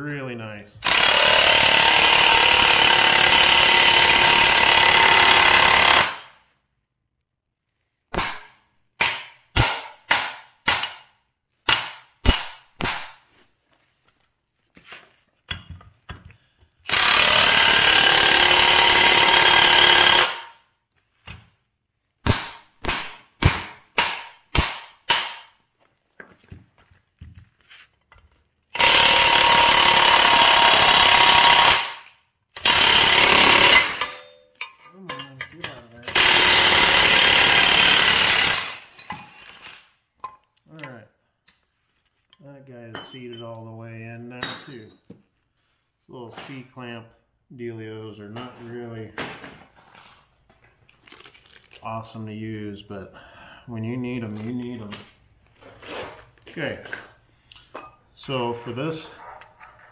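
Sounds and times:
impact wrench bursts: 0.8s - 6.3s, 16.8s - 20.6s, 28.7s - 34.2s, 36.0s - 39.9s.

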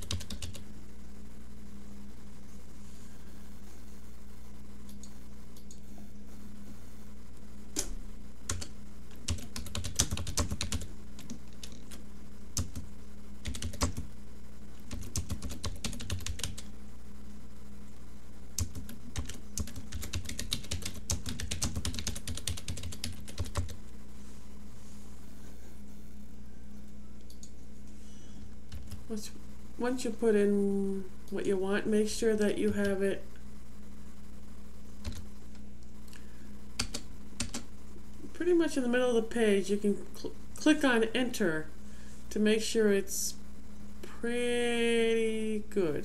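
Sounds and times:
keyboard typing: 0.0s - 0.6s, 8.5s - 12.0s, 12.6s - 12.8s, 13.4s - 14.1s, 14.8s - 16.7s, 18.6s - 23.8s, 28.7s - 29.0s, 35.0s - 35.3s, 36.8s - 37.7s
steady low hum: 0.0s - 46.0s.

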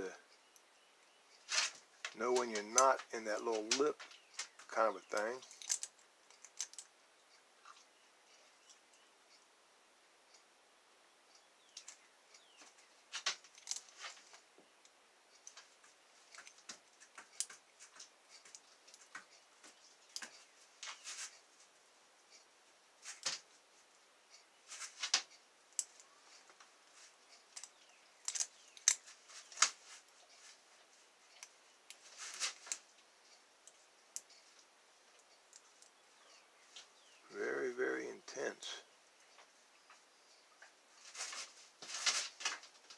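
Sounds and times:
lock pick scraping and clicking: 5.4s - 6.8s, 13.5s - 13.9s, 27.6s - 29.0s.

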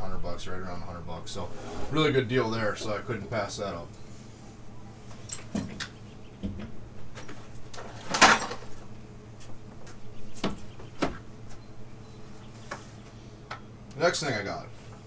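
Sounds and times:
tools clattering: 7.2s - 8.8s.

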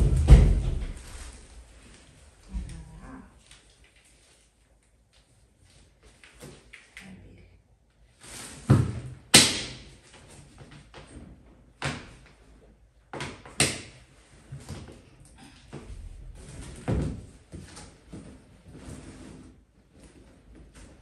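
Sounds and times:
sharp bangs and knocks: 0.0s - 1.2s.

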